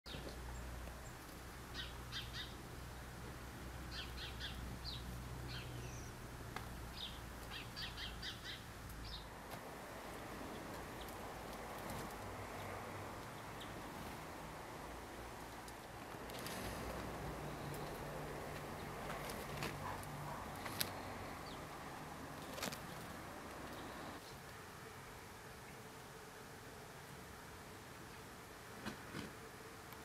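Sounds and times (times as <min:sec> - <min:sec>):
small songbirds chirping: 0:00.1 - 0:09.4, 0:10.4 - 0:14.1, 0:15.5 - 0:24.2
steady hiss: 0:00.4 - 0:26.1.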